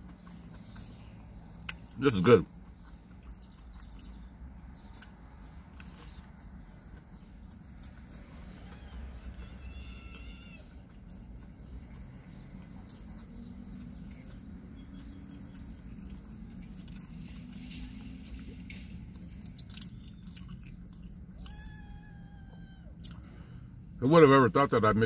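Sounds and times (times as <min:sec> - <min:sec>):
person chewing with wet smacking: 0:00.0 - 0:21.9, 0:22.9 - 0:23.4
low steady hum: 0:00.0 - 0:25.0.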